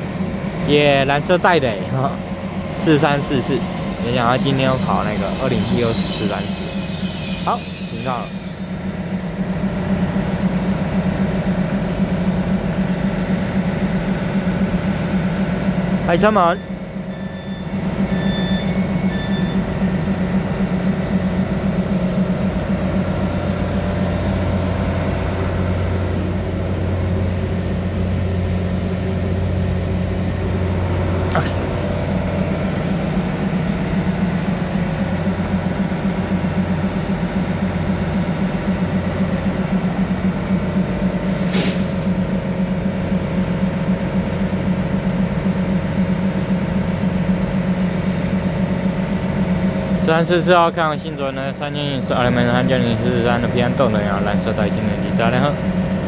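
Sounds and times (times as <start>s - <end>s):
train equipment low hum: 0.0s - 56.0s
brief air hiss: 41.0s - 42.0s.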